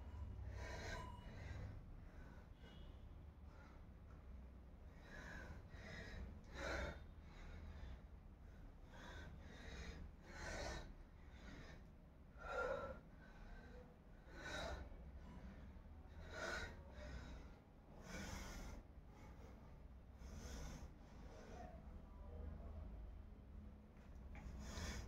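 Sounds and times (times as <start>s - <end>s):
low steady hum: 0.0s - 25.0s
person breathing heavily: 4.9s - 21.8s.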